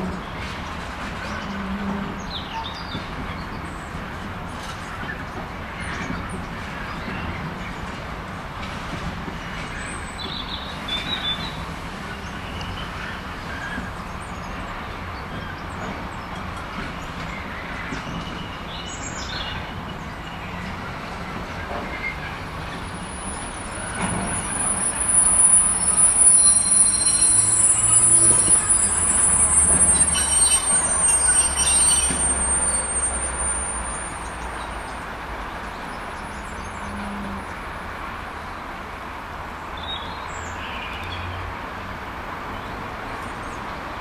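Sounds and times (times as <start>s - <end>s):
freight train wagons rolling: 0.0s - 39.5s
wheel squeal: 21.7s - 34.8s.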